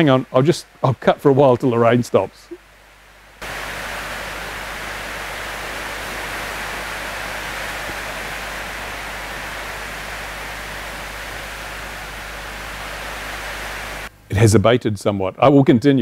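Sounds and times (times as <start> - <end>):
heavy rain on roof: 3.4 - 14.1.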